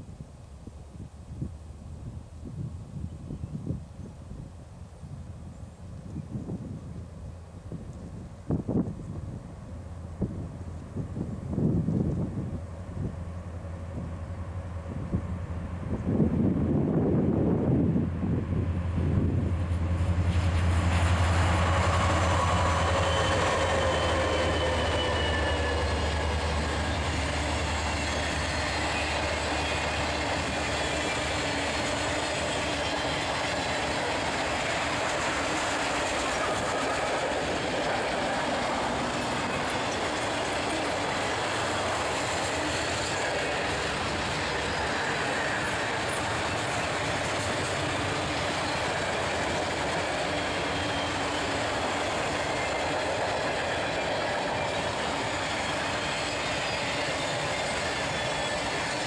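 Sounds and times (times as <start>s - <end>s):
locomotive engine drone: 7.0s - 59.0s
faint wheel squeal: 22.1s - 27.1s, 53.6s - 59.0s.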